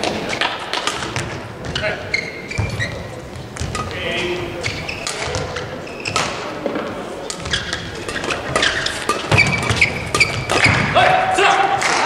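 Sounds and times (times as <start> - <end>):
racket hitting shuttlecock: 0.0 - 1.9, 4.8 - 11.0
footsteps on court: 0.0 - 11.0
shoe squeaks: 1.6 - 6.5, 7.3 - 10.9.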